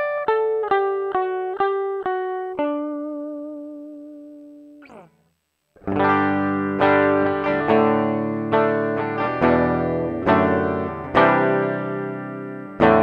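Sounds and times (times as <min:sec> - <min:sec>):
electric guitar chords strummed: 0:05.8 - 0:13.0.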